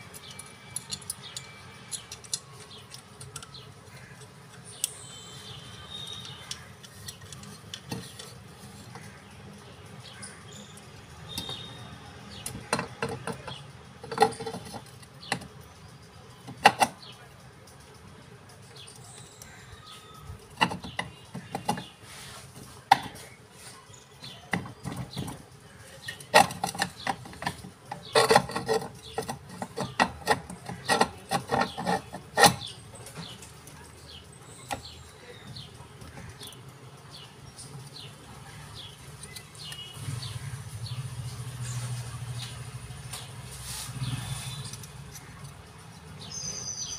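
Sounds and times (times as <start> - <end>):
clicks and knocks of hard parts: 6.0 - 9.2, 12.3 - 15.7, 16.4 - 17.2, 20.4 - 22.0, 22.9 - 23.3, 24.5 - 33.7.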